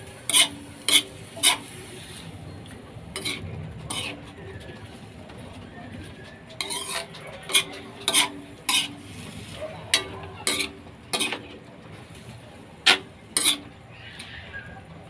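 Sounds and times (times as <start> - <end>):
metal ladle scraping a wok: 0.1 - 2.5, 3.1 - 5.0, 6.5 - 11.5, 12.1 - 14.3.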